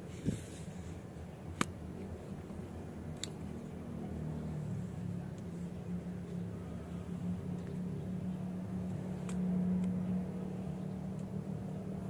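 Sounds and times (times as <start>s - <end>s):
low motor hum: 0.0s - 12.0s.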